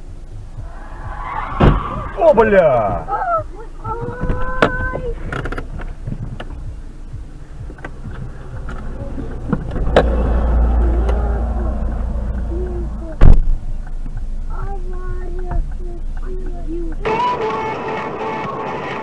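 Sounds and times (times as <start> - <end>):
lorry passing with deep rumble: 0.0 - 17.0
loud sharp thump: 1.4 - 2.2, 13.2 - 13.6.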